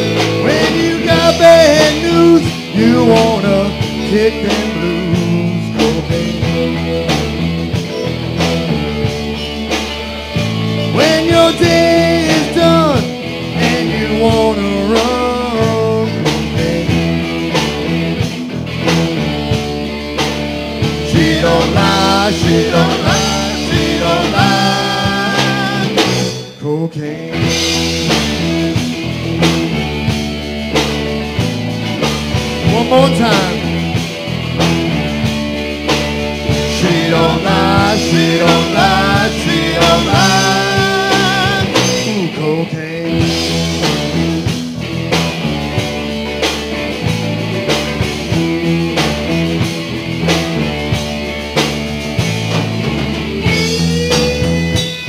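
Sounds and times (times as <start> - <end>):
man singing: 0.0 - 7.4, 10.8 - 17.3, 21.0 - 28.5, 32.6 - 33.8, 36.6 - 44.1
electric guitar: 0.0 - 55.0
live rock band: 0.0 - 55.0.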